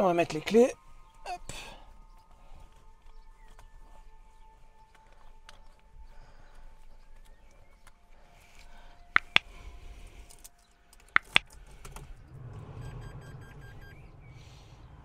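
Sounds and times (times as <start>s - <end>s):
low hum: 0.8s - 15.0s
short electronic beeps: 12.6s - 14.2s.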